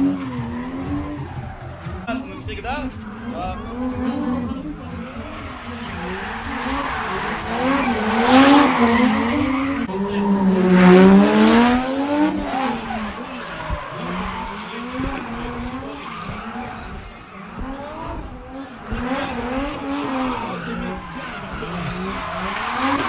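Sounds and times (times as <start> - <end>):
car engines revving: 0.0 - 23.0
tyres squealing: 0.0 - 23.0.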